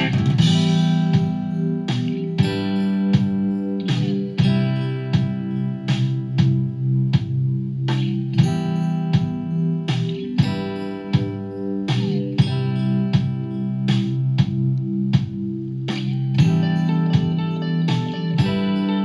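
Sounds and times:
sharp percussive hits: 0.0 - 6.6, 7.9 - 14.6
guitar-led background music: 0.0 - 19.0.

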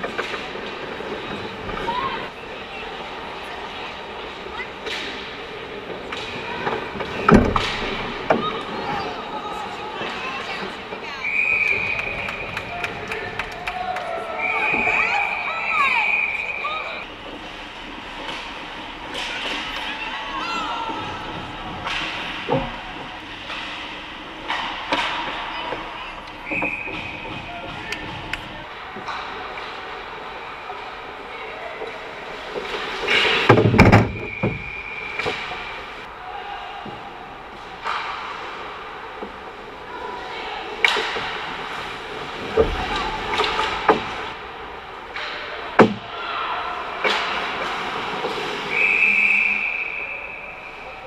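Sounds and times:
hockey sticks and puck clacking: 0.0 - 15.1, 17.0 - 36.2, 36.8 - 50.9
echoing rink hum: 0.0 - 51.0
referee's whistle: 11.2 - 12.7, 14.4 - 17.0, 26.4 - 27.4, 34.2 - 35.4, 48.7 - 51.0.

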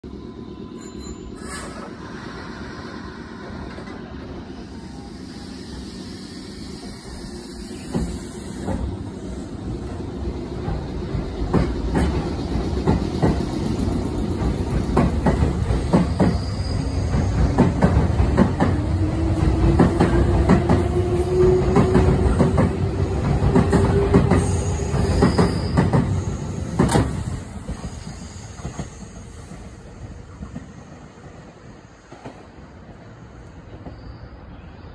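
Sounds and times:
train wheels clacking over joints: 10.6 - 29.7.

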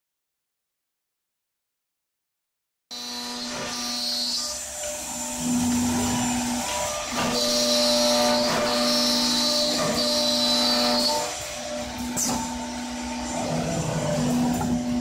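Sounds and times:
router spindles whining: 3.0 - 15.0.

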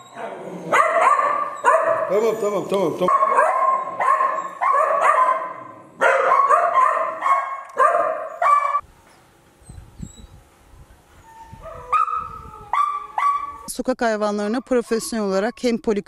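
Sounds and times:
puppies yelping and whining: 0.0 - 4.8, 11.2 - 13.7.

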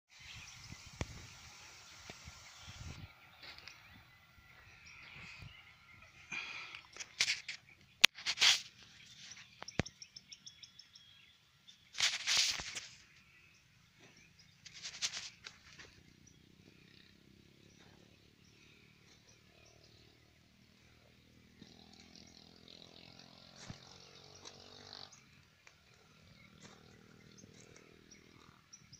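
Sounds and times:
bird chirping: 0.1 - 28.9
crackling rustle: 6.3 - 9.8, 11.9 - 13.3, 14.0 - 16.0.

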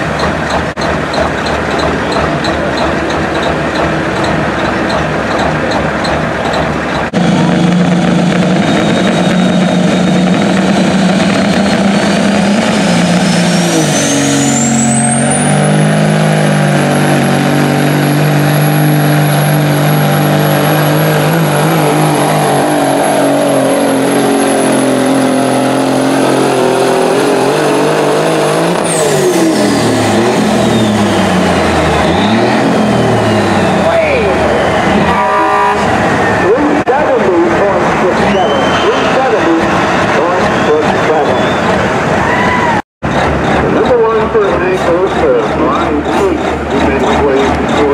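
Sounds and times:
diesel truck engine under load: 0.0 - 47.9
turbocharger whistle: 7.2 - 36.6, 38.1 - 42.8.

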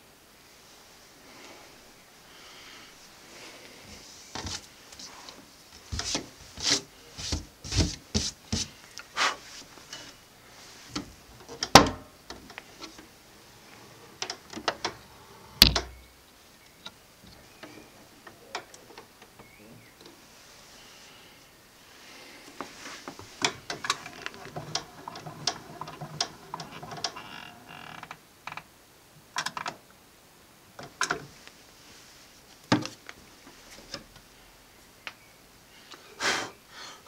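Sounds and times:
wood rubbing on wood: 3.9 - 10.2, 22.5 - 28.0.

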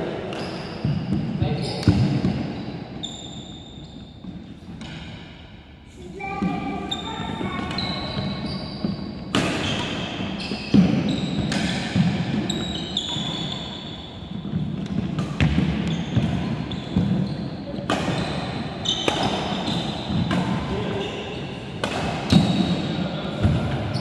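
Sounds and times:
shoes squeaking on wooden court: 0.2 - 5.3, 6.4 - 24.0
racket striking shuttlecock: 9.2 - 12.4, 19.0 - 20.6, 21.8 - 22.9.

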